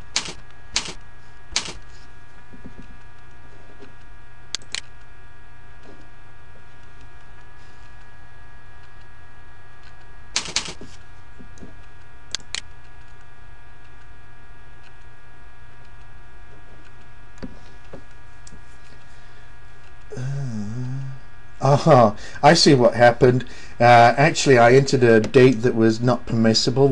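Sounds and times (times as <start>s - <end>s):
steady electrical hum: 0.0s - 26.9s
keyboard and mouse clicks: 0.1s - 1.0s, 1.6s - 1.8s, 4.5s - 4.9s, 12.3s - 12.7s.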